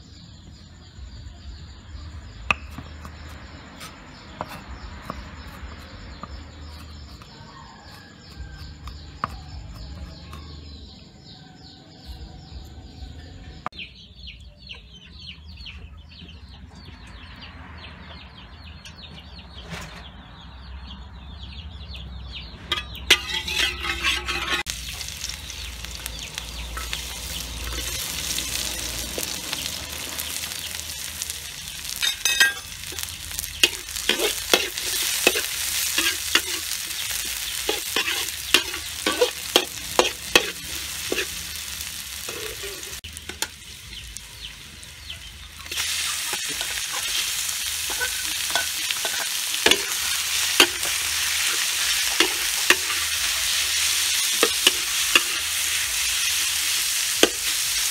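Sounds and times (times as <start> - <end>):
metal spatula scraping wok: 22.5 - 43.8, 45.6 - 57.9
food sizzling in hot oil: 22.7 - 57.9.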